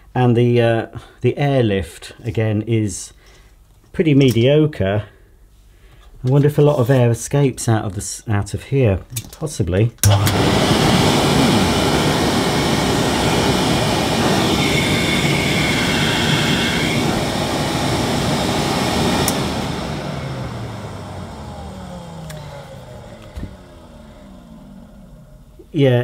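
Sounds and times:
motor winding down: 0:10.0 - 0:25.7
vacuum cleaner running: 0:10.0 - 0:25.7
switch click: 0:19.2 - 0:19.5.

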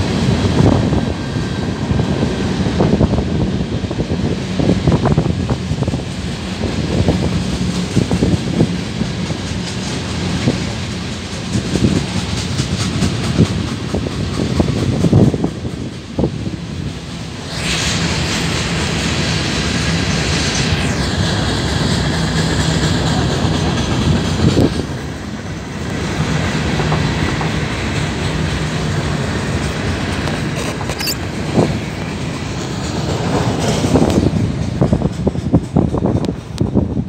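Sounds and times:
steel wheels rumbling on rail: 0:00.0 - 0:37.0
wheels clacking over rail joints: 0:04.2 - 0:17.2, 0:21.3 - 0:37.0
high wheel squeal: 0:30.5 - 0:31.7.

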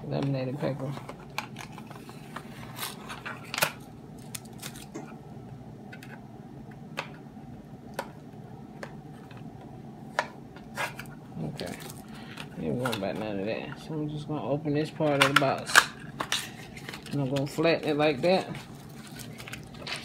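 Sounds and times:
steady low hum: 0:00.0 - 0:20.0
cardboard and paper handled: 0:10.7 - 0:13.3.

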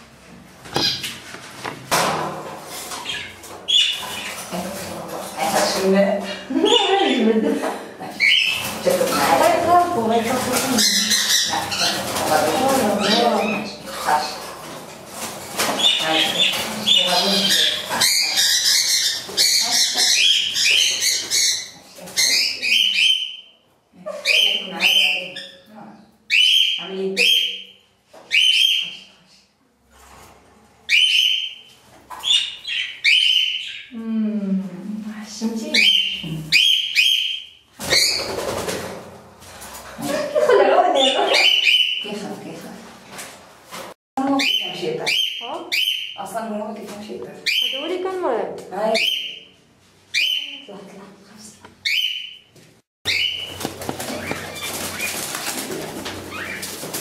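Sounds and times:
wings flapping: 0:08.4 - 0:18.0, 0:37.8 - 0:40.2, 0:53.1 - 0:57.0
cockatiels shrill calls: 0:15.8 - 0:23.4.

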